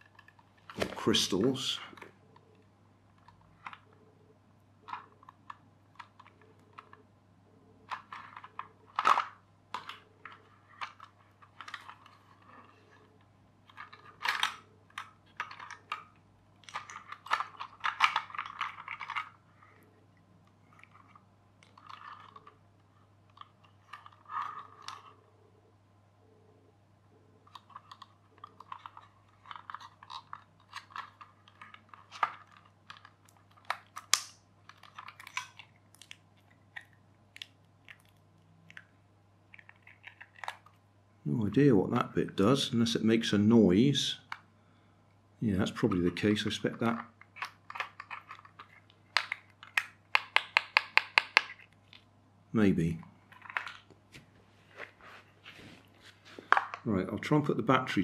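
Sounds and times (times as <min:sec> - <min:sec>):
plastic toy parts clicking and rattling: 0:00.0 - 0:00.9, 0:04.8 - 0:07.0, 0:07.9 - 0:13.0, 0:13.6 - 0:19.4, 0:20.7 - 0:22.6, 0:23.2 - 0:25.2, 0:27.4 - 0:38.9, 0:39.5 - 0:40.8, 0:45.8 - 0:52.1, 0:53.3 - 0:53.9, 0:56.4 - 0:56.9.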